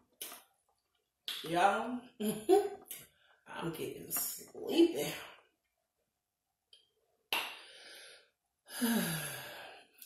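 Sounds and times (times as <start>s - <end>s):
woman breathing: 7.5s - 10.0s
woman sighing: 8.7s - 9.8s.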